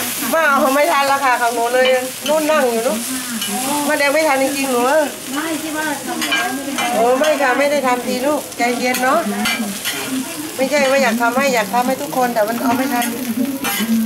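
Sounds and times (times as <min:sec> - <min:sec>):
metal spatulas scraping a pan: 0:00.0 - 0:04.9, 0:06.1 - 0:07.8, 0:08.7 - 0:11.2, 0:12.6 - 0:14.0
batter and sprouts sizzling: 0:00.0 - 0:14.0.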